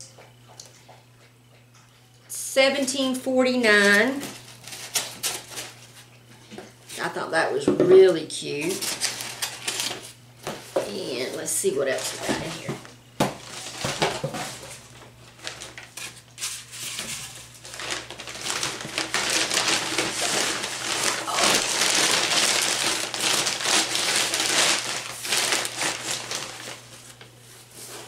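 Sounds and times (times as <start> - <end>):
plastic bag crinkling: 8.6 - 10.2, 10.8 - 28.0.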